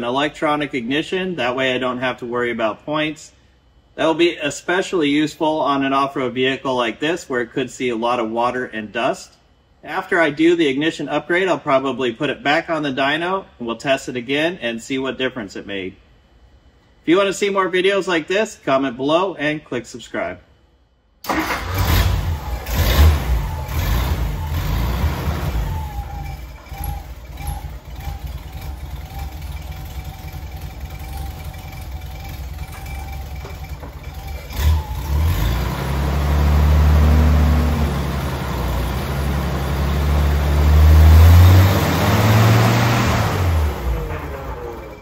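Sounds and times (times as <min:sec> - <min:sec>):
truck engine idling and revving: 0:21.3 - 0:45.0.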